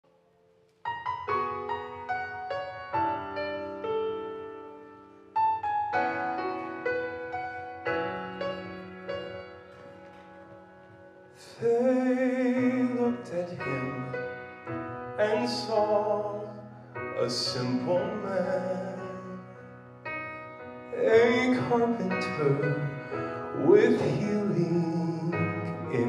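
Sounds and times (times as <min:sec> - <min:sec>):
piano rolling chords: 0:00.1 - 0:26.0
man singing with vibrato: 0:11.4 - 0:14.5, 0:15.2 - 0:19.6, 0:20.9 - 0:26.0.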